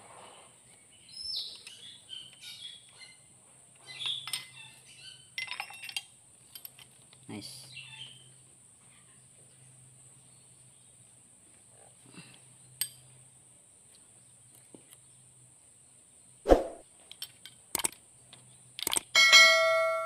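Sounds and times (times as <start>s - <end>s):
metal tools clicking: 5.4s - 7.2s, 17.1s - 18.0s, 18.8s - 19.2s.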